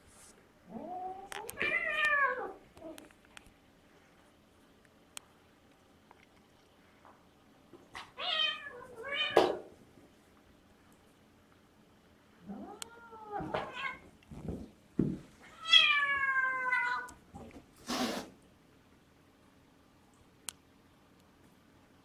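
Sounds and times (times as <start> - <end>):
cat meowing and yowling: 15.5 - 17.1.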